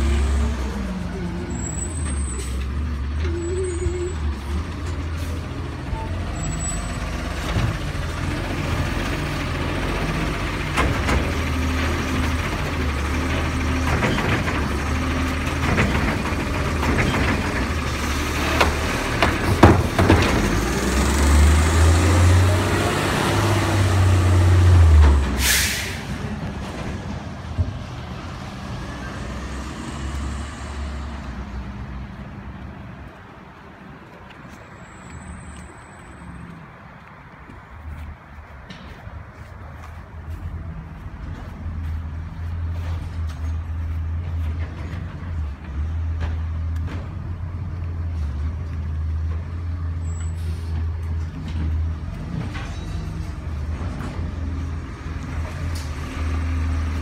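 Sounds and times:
garbage truck diesel engine: 0:00.0 - 0:33.2, 0:38.4 - 0:57.0
knocks and clanks: 0:13.2 - 0:21.0
air brake hiss: 0:25.4 - 0:26.1, 0:50.2 - 0:50.8.

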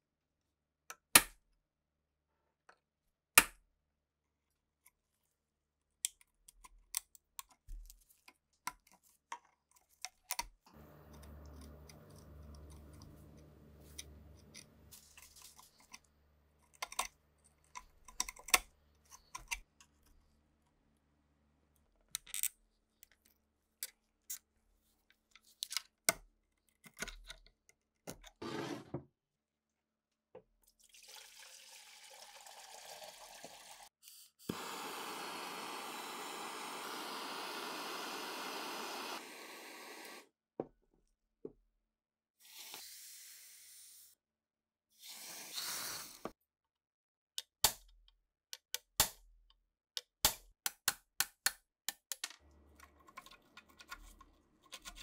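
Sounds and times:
gas torch flame hissing: 0:34.5 - 0:40.3.

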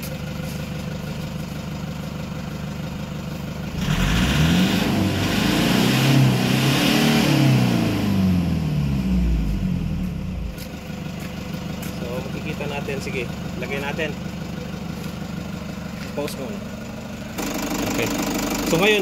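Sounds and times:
diesel engine revving: 0:02.9 - 0:15.8.

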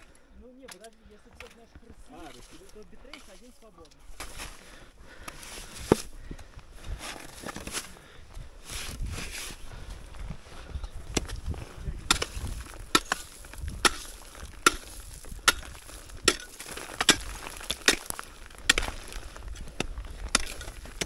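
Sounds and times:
digging tool chopping icy ground: 0:04.1 - 0:06.1, 0:06.9 - 0:08.1, 0:10.8 - 0:21.0.

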